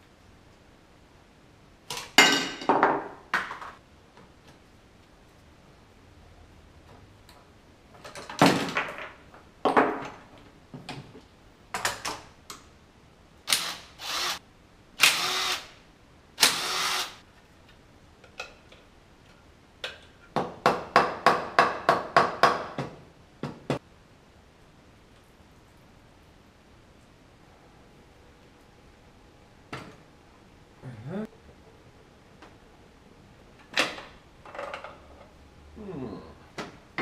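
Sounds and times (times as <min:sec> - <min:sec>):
cordless drill running in bursts: 0:13.5 - 0:14.4, 0:15.0 - 0:15.7, 0:16.4 - 0:17.2.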